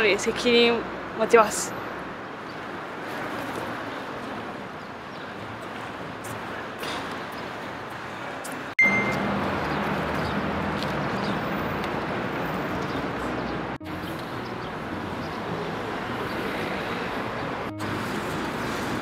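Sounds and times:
street traffic noise: 0.0s - 19.0s
short high tone: 8.8s - 9.4s.

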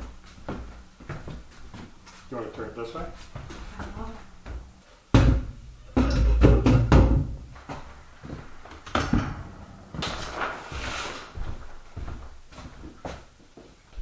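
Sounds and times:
furniture scraping on floor: 7.6s - 12.1s.

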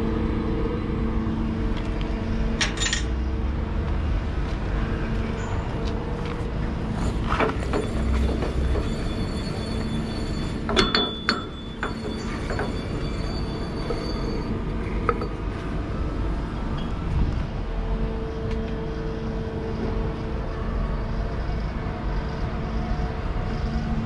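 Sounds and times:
low machinery hum: 0.0s - 24.0s
metal clanks and clinks: 2.6s - 3.2s, 7.1s - 15.4s.

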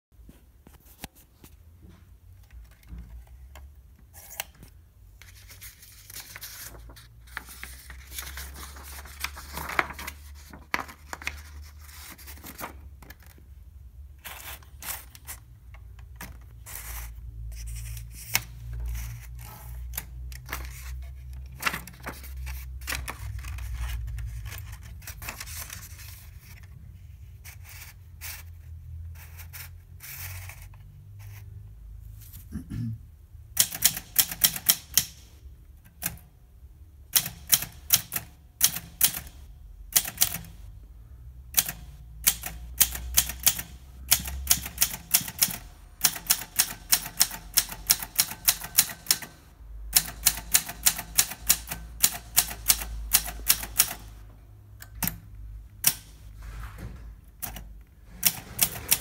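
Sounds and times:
paper rustling in typewriter: 5.2s - 13.4s, 14.2s - 26.7s, 41.6s - 49.4s, 55.8s - 59.0s
typewriter clicks and snaps: 33.6s - 35.3s, 37.2s - 39.4s, 40.0s - 40.6s, 41.6s - 49.4s, 50.0s - 54.1s.

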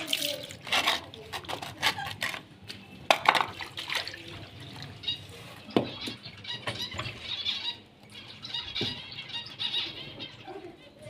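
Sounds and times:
water pouring into a bowl: 0.0s - 1.2s, 3.5s - 5.1s.

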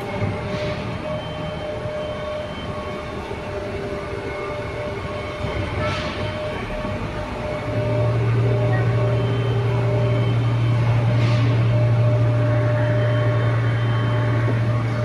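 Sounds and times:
loud low machine hum: 0.0s - 15.0s.

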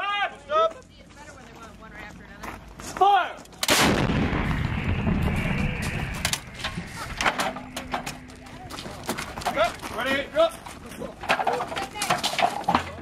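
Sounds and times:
howitzer firing blast: 3.6s - 7.7s.

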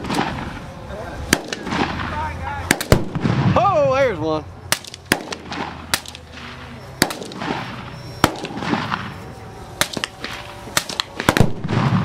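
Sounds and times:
rifle shots: 0.0s - 0.7s, 1.3s - 3.6s, 4.7s - 9.2s, 9.8s - 12.0s
explosive target bang: 1.3s - 3.9s, 9.8s - 12.0s.

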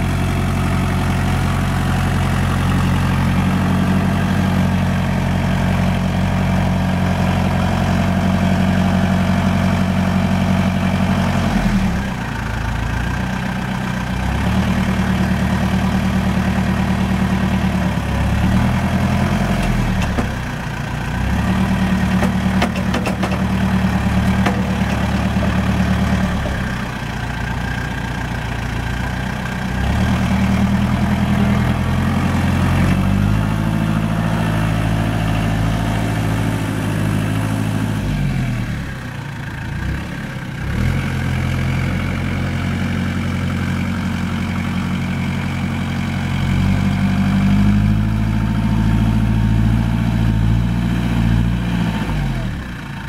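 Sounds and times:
tractor engine running: 0.0s - 53.0s.

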